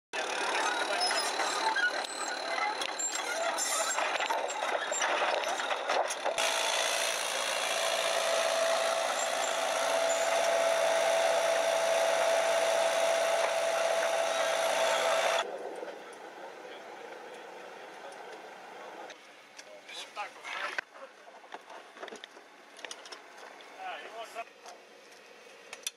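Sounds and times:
steady mechanical whine: 0.2s - 20.8s.

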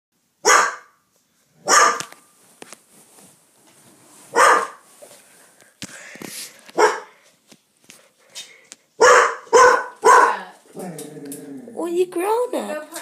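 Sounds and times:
dog barking: 0.4s - 1.0s, 1.6s - 2.1s, 4.3s - 4.8s, 6.8s - 7.1s, 9.0s - 10.5s.

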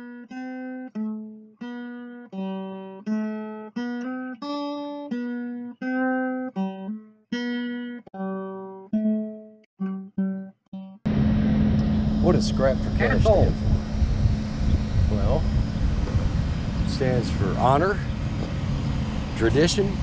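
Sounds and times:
plucked guitar melody: 0.0s - 14.9s.

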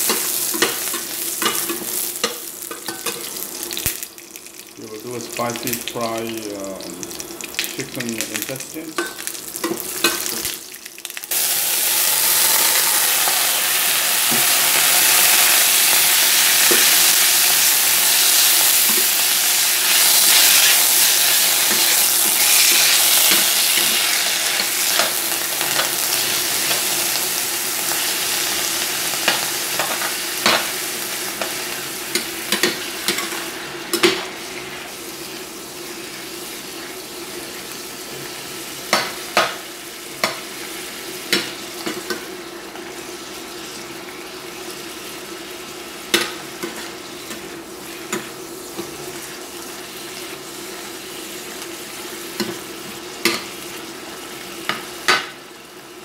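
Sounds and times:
frying sizzle in a pan: 0.0s - 56.0s
metal spatula scraping a pan: 11.9s - 13.8s.

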